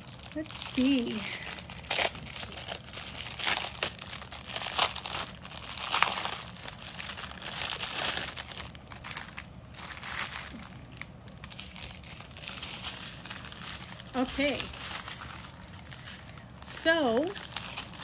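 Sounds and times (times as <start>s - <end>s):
small plastic bags crinkling: 0.0s - 18.0s.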